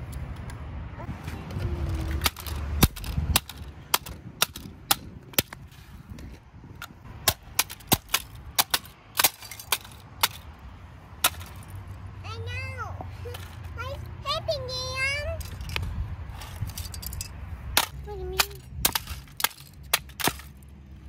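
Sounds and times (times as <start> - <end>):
hammer smashing plastic toys: 2.2 - 5.6, 7.2 - 10.5, 11.2 - 11.7, 16.6 - 20.6.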